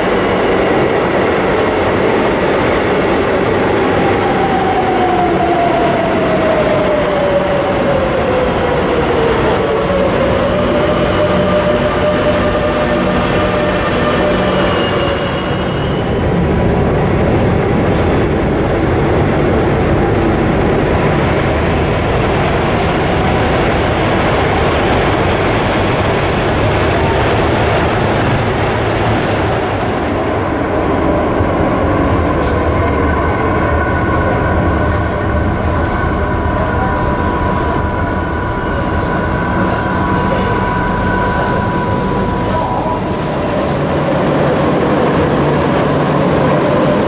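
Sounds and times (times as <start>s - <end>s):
metro train running noise inside: 0.0s - 47.0s.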